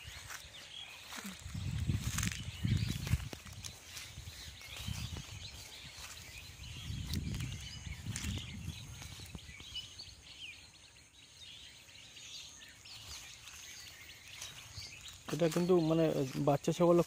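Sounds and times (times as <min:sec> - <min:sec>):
faint bird chirps: 0:00.0 - 0:17.0
low microphone rumble: 0:01.3 - 0:10.0.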